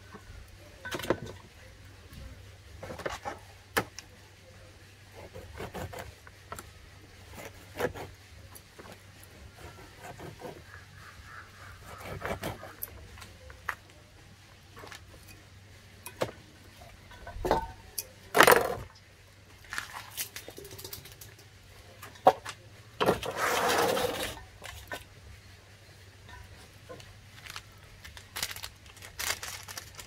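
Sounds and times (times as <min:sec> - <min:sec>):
scraping rustling noise: 0:02.7 - 0:03.6, 0:23.0 - 0:25.1.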